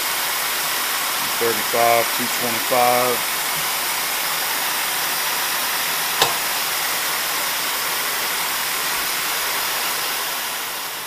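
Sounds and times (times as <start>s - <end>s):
compressed air hissing: 0.9s - 11.0s
milling machine cutting: 6.2s - 6.7s.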